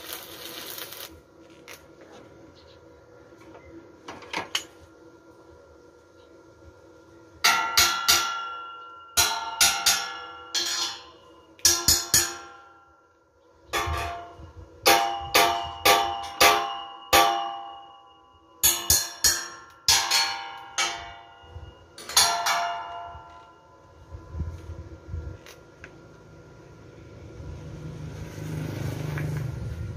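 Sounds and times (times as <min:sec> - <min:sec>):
hammer striking steel rebar: 0:07.4 - 0:13.0, 0:13.8 - 0:23.6.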